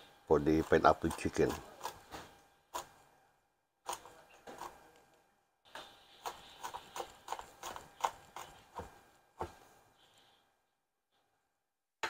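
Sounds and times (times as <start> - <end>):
knife chopping on wooden board: 6.2 - 9.7.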